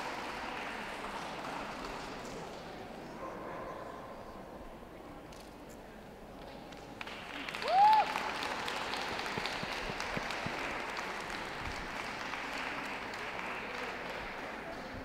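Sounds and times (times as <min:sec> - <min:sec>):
audience applauding: 0:00.0 - 0:02.2, 0:07.0 - 0:15.0
loud whoop: 0:07.6 - 0:08.3.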